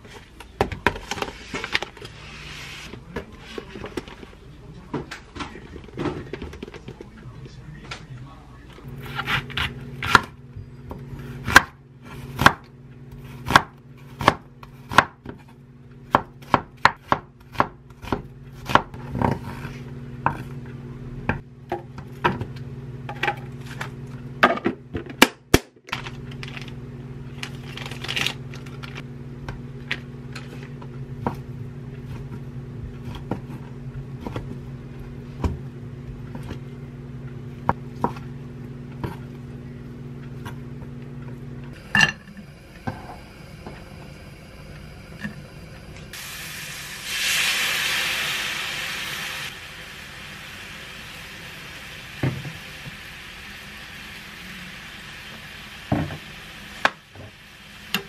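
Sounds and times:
steady low hum: 25.8s - 58.0s.

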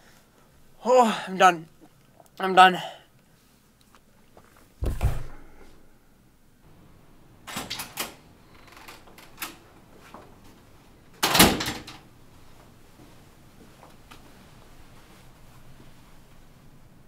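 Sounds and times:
dull thump: 4.8s - 5.6s
heavy door banging: 4.8s - 5.6s, 11.2s - 12.0s.

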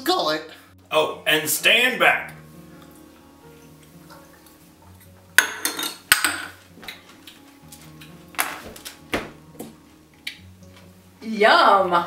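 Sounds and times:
background music: 0.0s - 12.0s
shot glasses clinking on stone: 5.4s - 6.6s.

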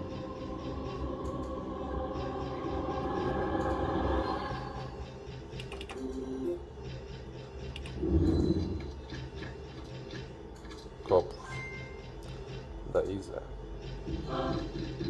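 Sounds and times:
slot machine ticking clicks: 0.0s - 10.4s
slot machine jingle: 11.4s - 12.0s.

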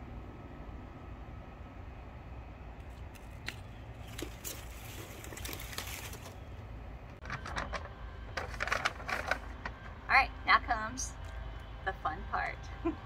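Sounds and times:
leafy stalks rustling: 2.8s - 9.8s.

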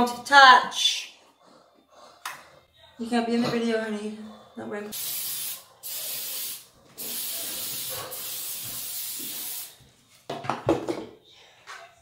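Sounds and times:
aerosol spray hissing: 4.9s - 9.8s.

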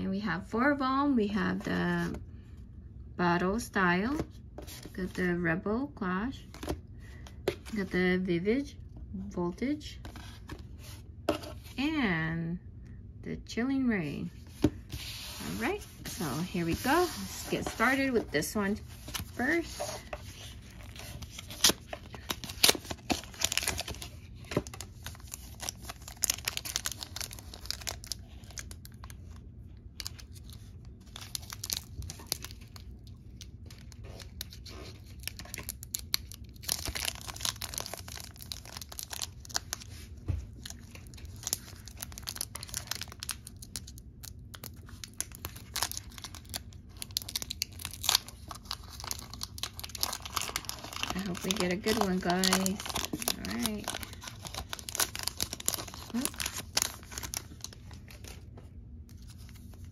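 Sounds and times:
cardboard packaging pulled apart: 18.9s - 29.4s, 33.7s - 44.0s, 44.7s - 58.4s
foil wrapper tearing and crinkling: 20.4s - 29.4s, 30.0s - 58.4s.

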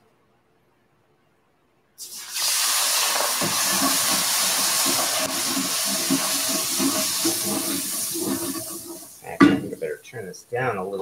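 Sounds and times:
milk sizzling in hot pan: 2.0s - 9.9s
wooden spatula stirring in pan: 3.2s - 9.8s.

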